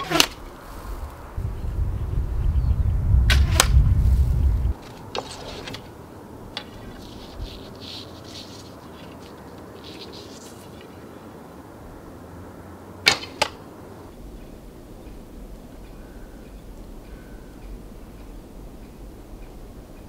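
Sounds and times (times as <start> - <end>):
soft rustles: 0.0 - 1.4, 3.6 - 6.0, 6.6 - 11.2
loud low rumble: 1.0 - 4.8.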